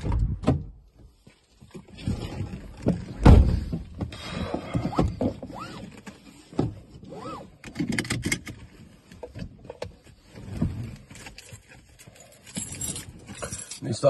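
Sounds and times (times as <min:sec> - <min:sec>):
seatbelt webbing rustling: 0:04.2 - 0:14.0.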